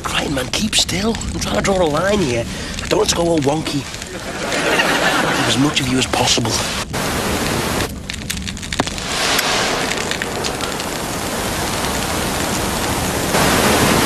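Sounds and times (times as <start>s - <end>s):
electronic static crackling: 0.0s - 14.0s
steady static hiss: 0.0s - 14.0s.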